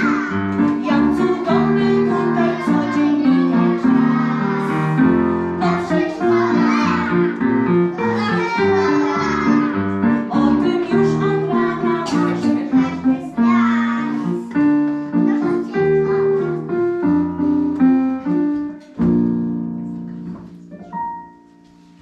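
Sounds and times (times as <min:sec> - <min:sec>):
young children singing: 0:00.0 - 0:14.7
keyboard playing: 0:00.0 - 0:22.0.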